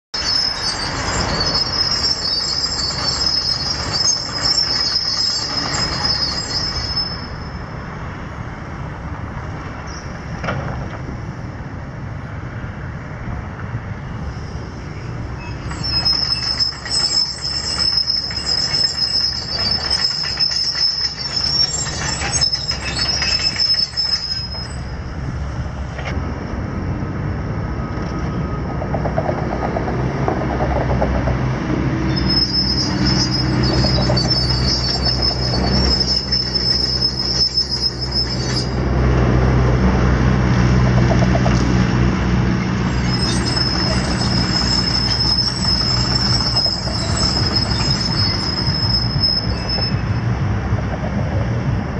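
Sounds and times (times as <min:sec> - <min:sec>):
steel crawler tracks squealing: 0:00.1 - 0:08.5, 0:14.0 - 0:26.2, 0:27.8 - 0:51.6.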